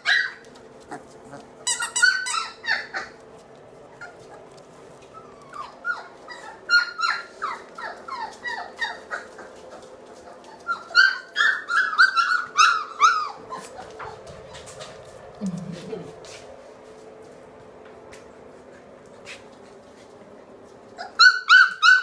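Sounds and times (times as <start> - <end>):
puppies whimpering and squealing: 0.0 - 3.3, 3.9 - 15.0, 21.0 - 22.0.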